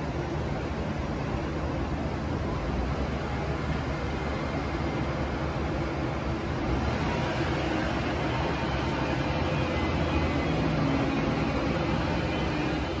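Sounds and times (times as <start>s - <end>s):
jet engines running: 3.1s - 13.0s.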